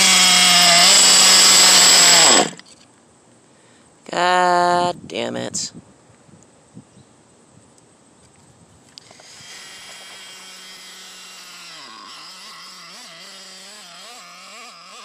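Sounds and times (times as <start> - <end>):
small engine running high pitched: 0.0 - 2.6, 9.0 - 15.0.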